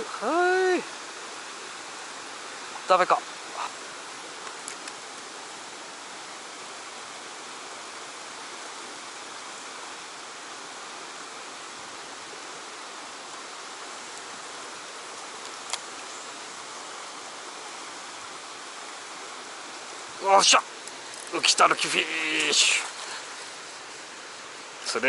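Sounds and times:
stream water rushing over rock: 0.0s - 25.0s.

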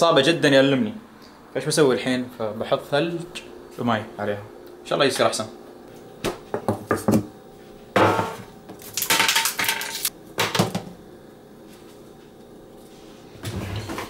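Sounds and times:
ice cubes clattering onto metal tray: 8.8s - 10.1s.

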